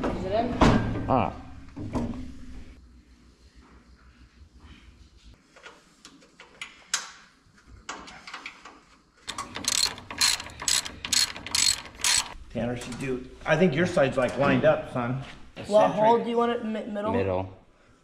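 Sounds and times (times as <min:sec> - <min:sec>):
socket ratchet clicking: 0:09.3 - 0:12.4.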